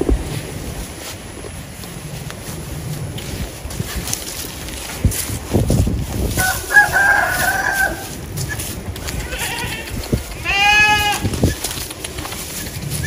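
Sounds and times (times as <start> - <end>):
footsteps rustling through grass: 0.0 - 13.0
rooster crowing: 6.4 - 8.2.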